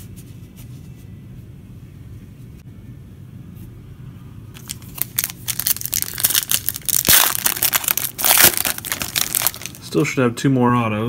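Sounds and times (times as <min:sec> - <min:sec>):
foil wrapper crinkling: 0:04.6 - 0:09.9.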